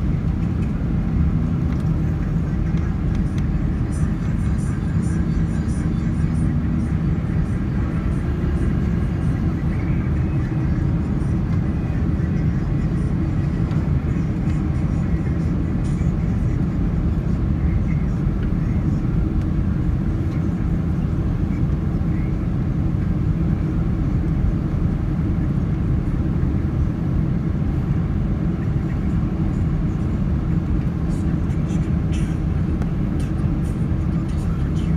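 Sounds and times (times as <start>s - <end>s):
airliner cabin rumble: 0.0s - 34.9s.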